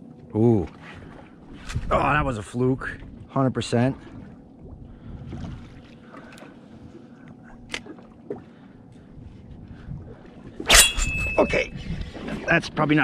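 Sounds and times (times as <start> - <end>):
wind noise: 1.5 - 3.3, 4.6 - 5.8, 9.1 - 13.0.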